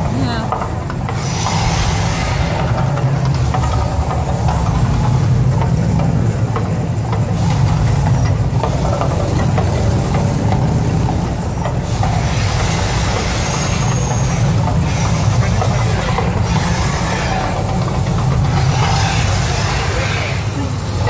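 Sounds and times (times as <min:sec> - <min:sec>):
deep rumble: 0:00.0 - 0:21.0
rushing fireball noise: 0:00.9 - 0:05.6.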